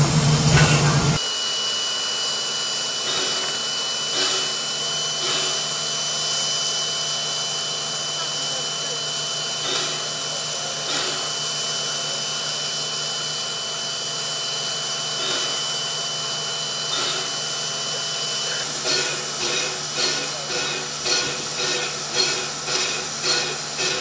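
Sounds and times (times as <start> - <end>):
steam locomotive hissing: 0.0 - 24.0.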